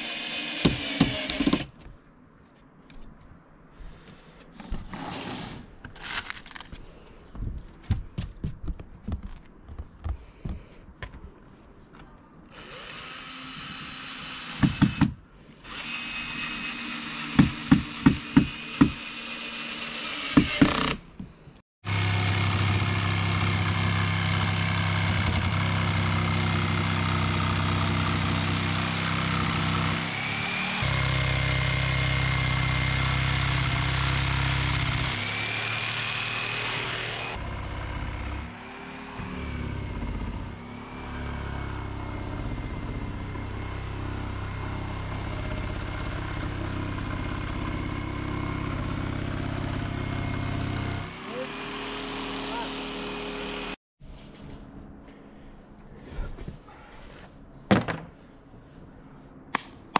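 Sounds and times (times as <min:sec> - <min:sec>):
cordless drill whining: 0:12.5 - 0:21.0
knocks on wooden boards: 0:57.7 - 0:58.2.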